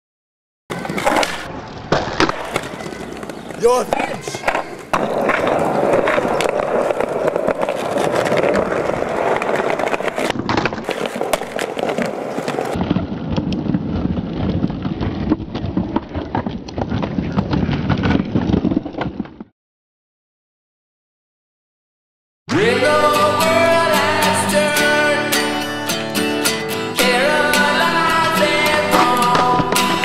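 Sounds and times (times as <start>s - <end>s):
skateboard wheels clacking on paving: 0.7s - 19.5s, 28.3s - 30.0s.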